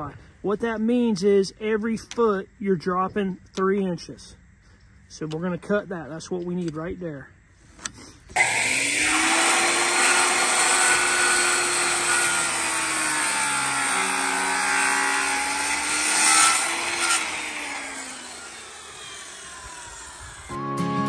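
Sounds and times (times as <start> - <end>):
circular saw cutting wood: 8.3 - 20.6.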